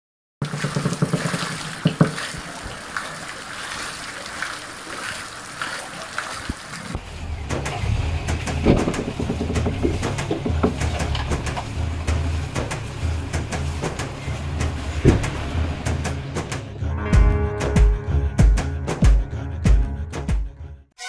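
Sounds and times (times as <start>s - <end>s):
water splashing off water wheel: 0.4s - 16.7s
low rumble: 7.0s - 20.8s.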